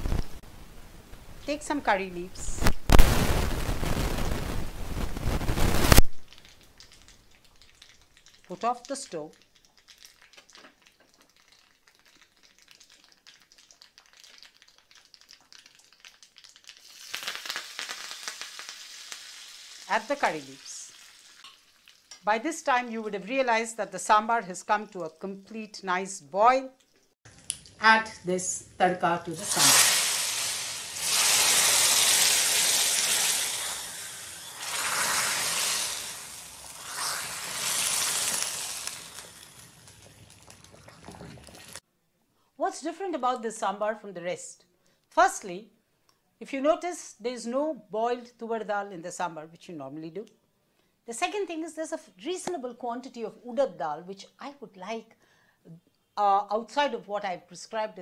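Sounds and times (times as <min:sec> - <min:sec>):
seeds crackling in hot oil: 0:01.6 - 0:25.7, 0:29.3 - 0:41.8
leaves sizzling in oil: 0:02.4 - 0:23.2, 0:29.3 - 0:41.8.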